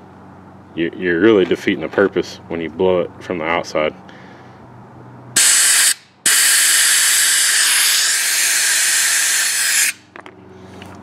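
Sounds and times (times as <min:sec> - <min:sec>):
compressed air blow gun hissing: 0:05.4 - 0:10.0.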